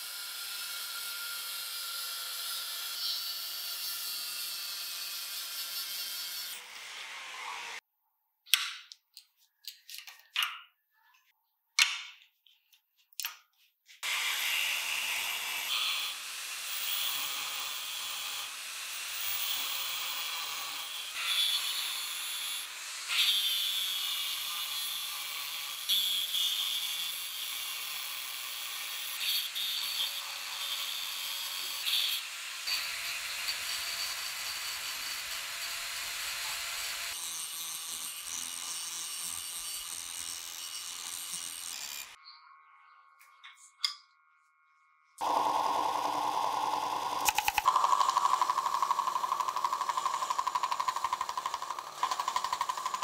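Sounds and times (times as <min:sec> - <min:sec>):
angle grinder grinding metal: 0:14.0 - 0:26.6, 0:29.2 - 0:42.2, 0:45.2 - 0:53.0.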